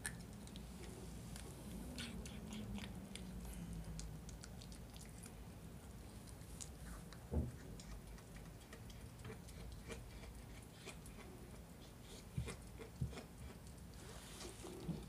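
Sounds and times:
teeth clicking on bone: 0:00.0 - 0:05.4
puppy gnawing on bone: 0:00.0 - 0:15.0.

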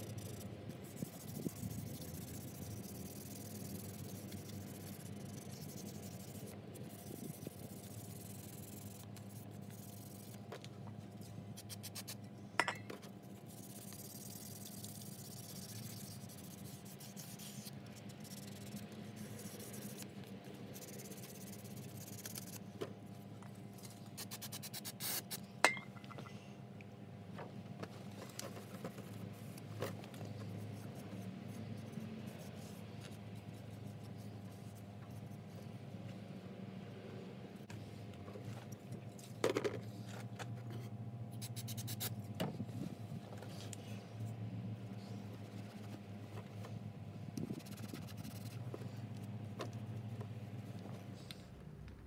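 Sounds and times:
sandpaper on plastic: 0:00.0 - 0:10.5, 0:11.2 - 0:12.2, 0:13.2 - 0:22.7, 0:23.8 - 0:25.4, 0:28.0 - 0:35.5, 0:41.4 - 0:43.8, 0:45.1 - 0:46.8, 0:47.4 - 0:49.9
faint steady hum: 0:00.0 - 0:52.0.

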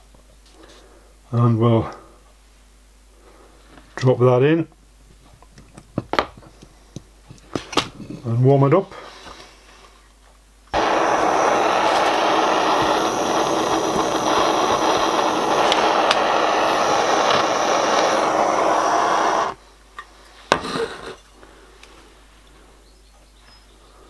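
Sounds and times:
gas torch rushing: 0:10.7 - 0:19.6.

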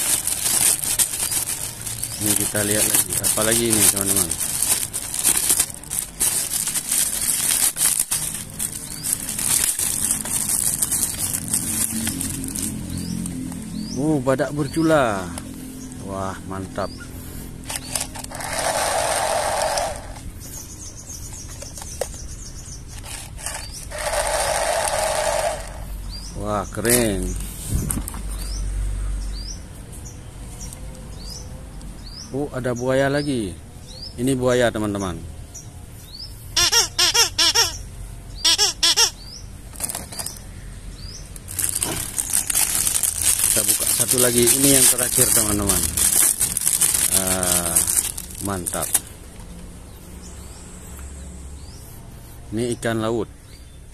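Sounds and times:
toy motor and gears whirring: 0:00.0 - 0:13.3, 0:17.5 - 0:20.4, 0:22.8 - 0:25.9, 0:36.6 - 0:37.8, 0:38.4 - 0:40.4, 0:41.4 - 0:49.0
plastic packet crinkling: 0:00.0 - 0:13.4, 0:17.7 - 0:20.2, 0:39.7 - 0:40.4, 0:41.4 - 0:49.1.

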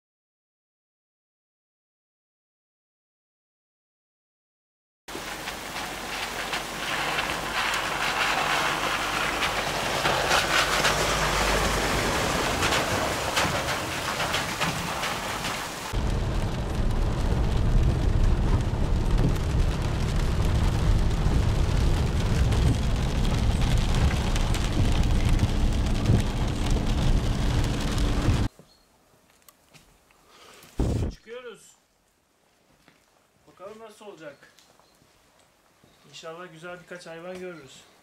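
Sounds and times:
rain hissing: 0:05.1 - 0:28.5
rain hitting windscreen: 0:05.1 - 0:28.5
vehicle driving on wet gravel: 0:05.1 - 0:28.5
vehicle rumble from inside cab: 0:05.4 - 0:28.5.

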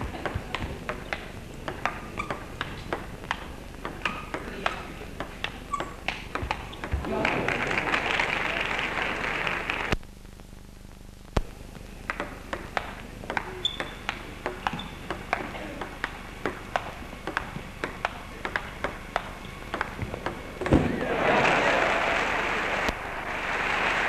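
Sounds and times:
table tennis ball clicking: 0:00.2 - 0:07.0, 0:12.1 - 0:20.4
crowd noise: 0:04.2 - 0:10.0, 0:20.4 - 0:24.0
applause: 0:07.2 - 0:10.0, 0:21.2 - 0:24.0.

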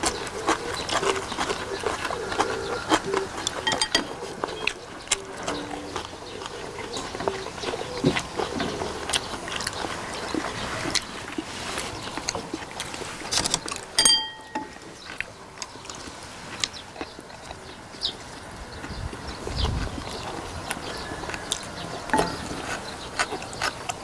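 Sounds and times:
wet chewing and smacking: 0:00.0 - 0:24.0
chopsticks clicking on dishes: 0:02.5 - 0:06.1, 0:13.3 - 0:14.8
sharp clink: 0:14.0 - 0:14.8.

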